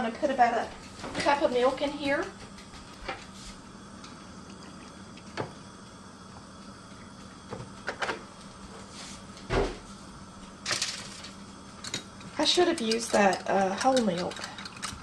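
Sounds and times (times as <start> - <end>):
faint steady hum: 0.0 - 15.0
loud thump: 9.5 - 9.8
containers and utensils clicking: 12.7 - 15.0.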